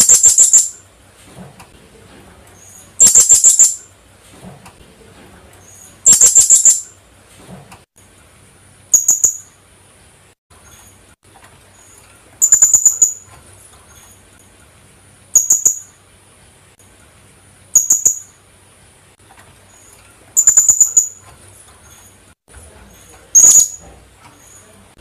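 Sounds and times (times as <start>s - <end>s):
parrot calling high-pitched notes: 3.0s - 3.8s, 12.4s - 13.2s, 20.4s - 21.2s, 23.4s - 23.8s.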